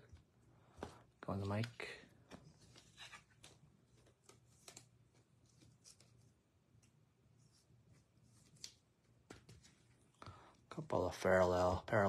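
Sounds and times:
cards sliding and tapping: 0.8s - 7.0s.

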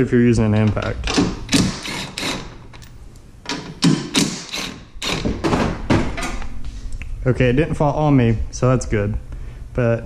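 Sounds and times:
impact wrench bursts: 1.1s - 2.7s, 3.5s - 5.6s.

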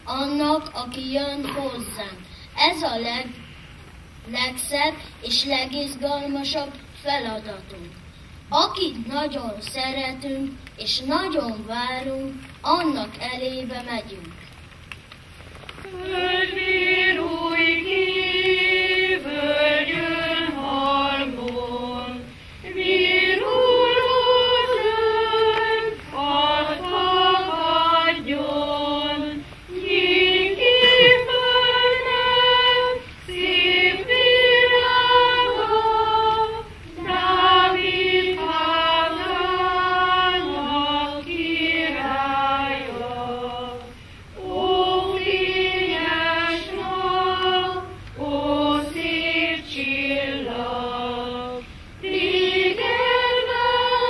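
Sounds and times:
children's choir singing: 15.8s - 54.0s.

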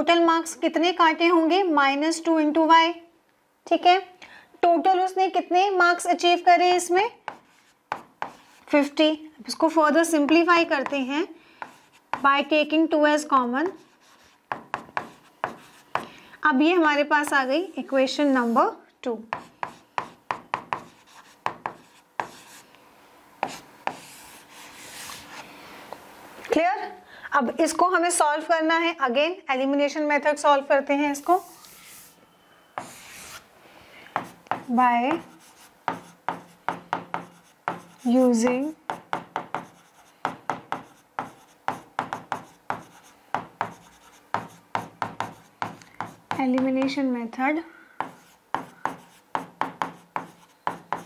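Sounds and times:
pen tapping and scratching on screen: 7.2s - 8.9s, 9.9s - 12.6s, 13.6s - 16.2s, 19.3s - 22.6s, 23.4s - 25.4s, 34.0s - 47.0s, 48.0s - 51.0s
stylus rubbing strokes: 23.4s - 25.6s, 31.2s - 33.5s.

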